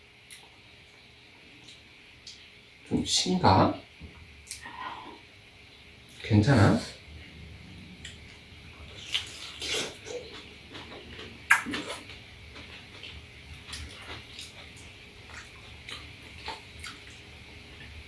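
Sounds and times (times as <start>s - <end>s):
wet chewing and lip smacks: 8.0s - 17.3s.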